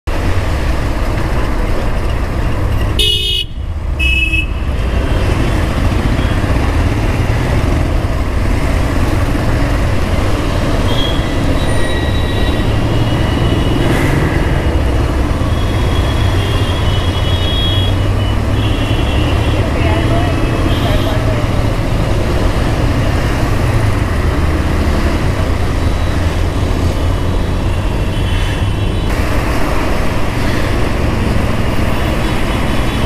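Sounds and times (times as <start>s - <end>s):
traffic rumble: 0.0s - 33.0s
vehicle horn tooting: 3.0s - 4.7s, 15.5s - 19.7s.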